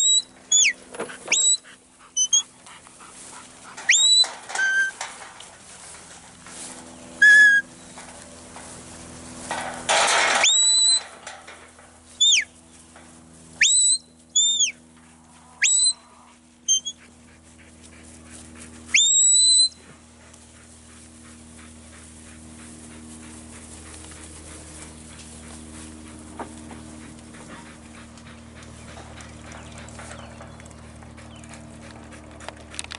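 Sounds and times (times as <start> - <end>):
whistled herding commands: 0.0 - 2.5, 3.8 - 5.1, 7.2 - 8.0, 10.1 - 11.3, 12.2 - 12.5, 13.6 - 14.8, 15.6 - 16.1, 16.7 - 17.0, 18.9 - 19.9.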